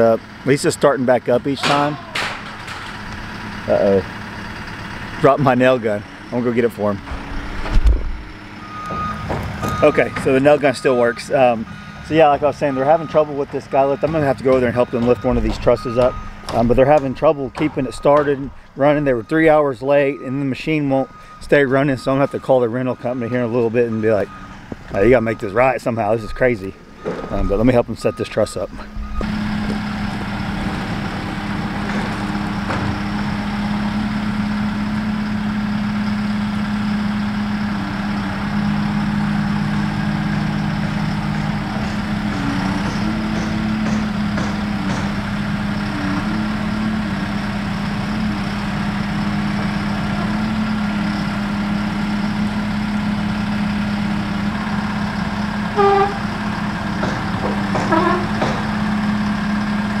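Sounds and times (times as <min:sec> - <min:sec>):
diesel engine running: 0:00.0 - 1:00.0
horn toot: 0:55.8 - 0:56.3.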